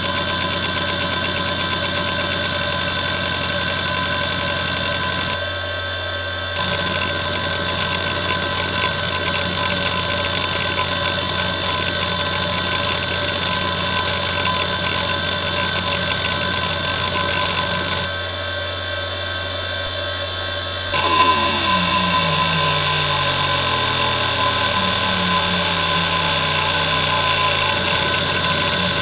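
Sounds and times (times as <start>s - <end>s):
hard drive spindle whine: 0.0s - 29.0s
hard drive head seek chatter: 6.6s - 18.1s, 21.0s - 29.0s
falling seek buzz: 20.9s - 29.0s.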